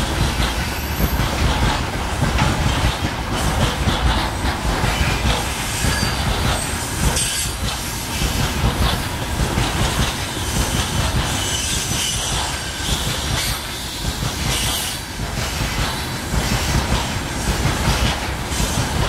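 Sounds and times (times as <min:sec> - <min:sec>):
train wheels rumbling on rails: 0:00.0 - 0:19.0
wheel squeal: 0:05.8 - 0:07.6, 0:11.3 - 0:13.1.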